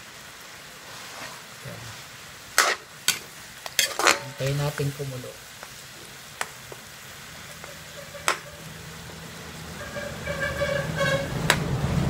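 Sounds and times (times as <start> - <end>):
metal ladle clinking on wok: 3.8 - 4.6
low engine rumble: 7.4 - 12.0
horn honking: 7.6 - 9.0, 9.6 - 11.6.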